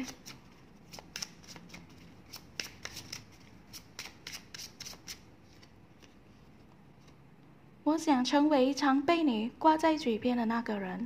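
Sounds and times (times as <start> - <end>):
paper cards flicking and tapping: 0.0 - 6.2.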